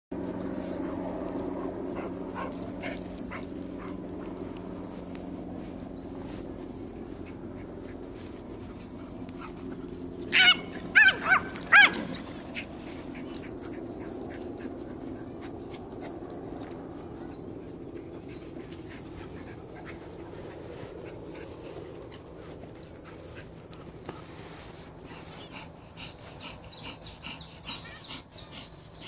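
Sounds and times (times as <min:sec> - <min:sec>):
dog barking: 0:10.4 - 0:12.0.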